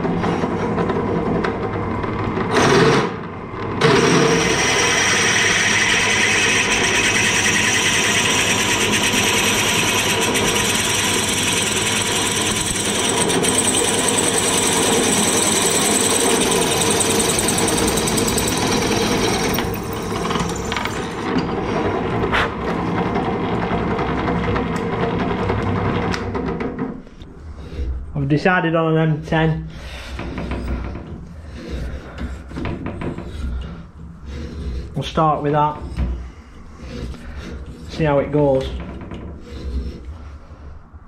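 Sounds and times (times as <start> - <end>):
pillar drill running: 2.1 - 26.1
drill bit cutting metal: 3.8 - 21.2.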